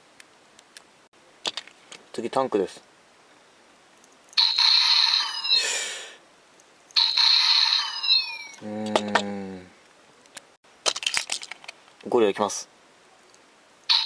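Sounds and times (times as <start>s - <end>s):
electronic toy tones and sweeps: 4.4s - 5.7s, 7.0s - 8.6s.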